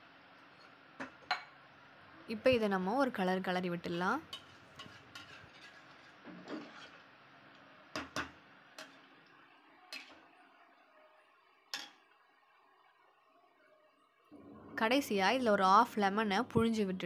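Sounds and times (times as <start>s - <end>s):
metal spoon scraping pressure cooker: 4.3s - 7.0s.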